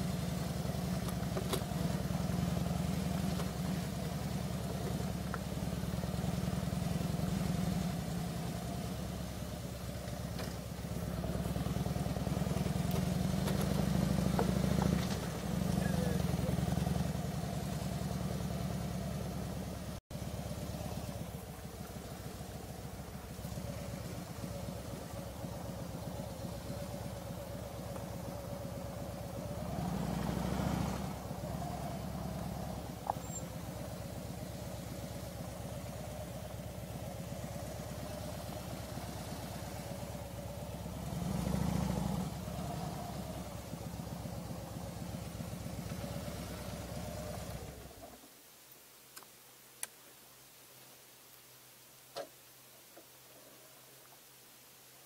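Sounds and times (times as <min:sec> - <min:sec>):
motorcycle engine running: 0:00.0 - 0:48.1.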